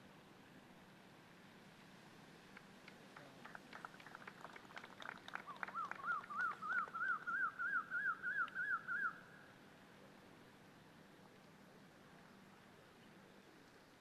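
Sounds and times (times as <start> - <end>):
bird calling: 5.4 - 9.5.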